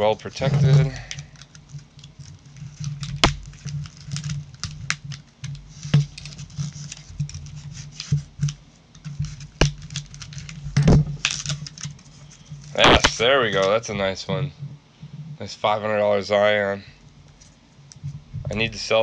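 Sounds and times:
paper wrapping crinkling: 0.3s - 13.9s
sharp wrapping snap: 1.1s - 12.0s.

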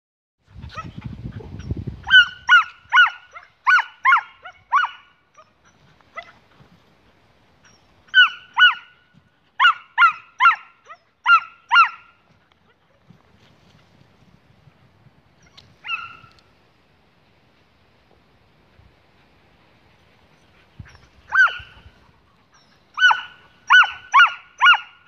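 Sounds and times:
wind rumble on microphone: 0.4s - 3.2s, 13.0s - 17.0s, 18.1s - 22.4s
dog barking: 2.0s - 5.5s, 8.1s - 8.9s, 9.6s - 12.2s, 21.3s - 21.8s, 23.0s - 25.0s.

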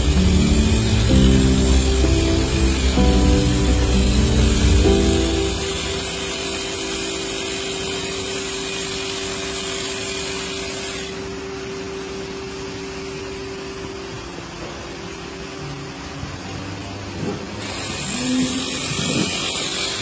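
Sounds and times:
electric clippers buzzing: 0.0s - 11.3s, 17.6s - 20.0s.

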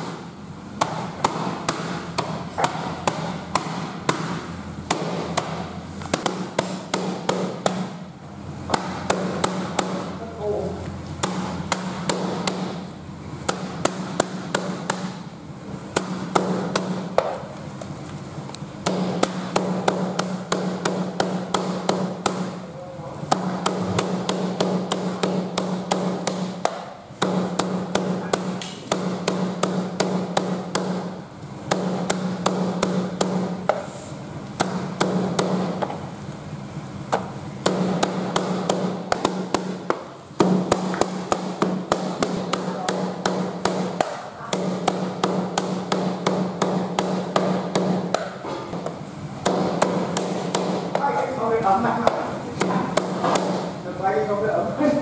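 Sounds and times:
cleaver chopping on cutting board: 0.8s - 7.9s, 37.1s - 51.2s, 52.0s - 53.7s.

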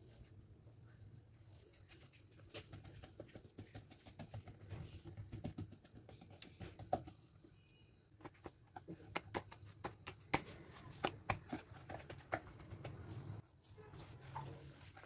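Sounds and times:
hands patting dough on wooden board: 2.3s - 13.4s.

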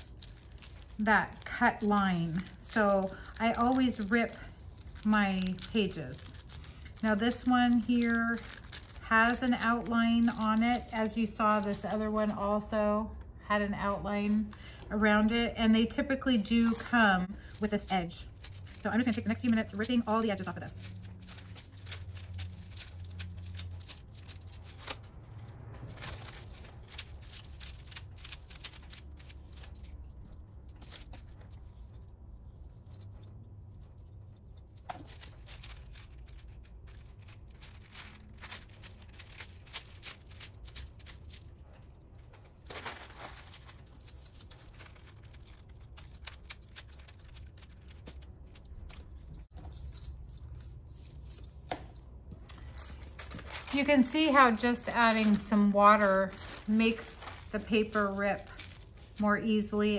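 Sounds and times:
rice paper tearing: 0.0s - 11.0s, 35.0s - 41.4s, 52.6s - 59.2s
paper rustling and crinkling: 0.0s - 11.7s, 16.3s - 59.9s
low steady hum: 0.0s - 59.9s.

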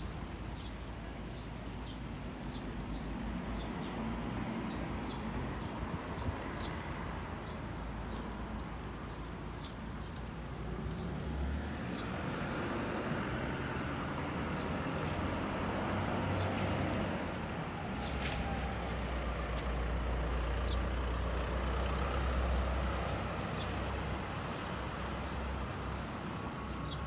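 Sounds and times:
small birds chirping: 0.0s - 15.4s, 16.0s - 27.0s
road traffic: 0.0s - 27.0s
vehicle approaching: 7.4s - 27.0s.

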